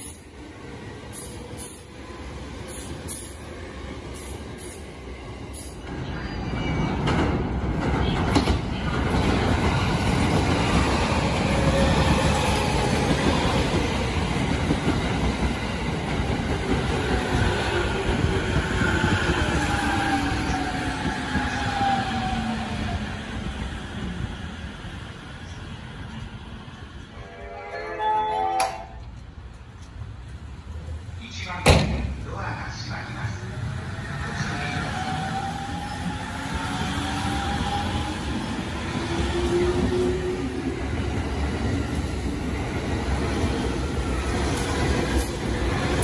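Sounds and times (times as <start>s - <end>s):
train wheels rumbling on rails: 0.0s - 27.1s, 29.0s - 46.0s.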